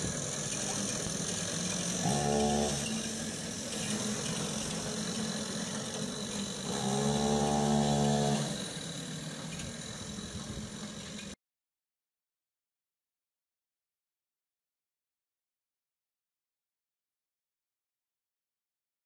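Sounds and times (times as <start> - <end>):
long steady tones: 0.0 - 11.4
small engine running: 0.0 - 11.4.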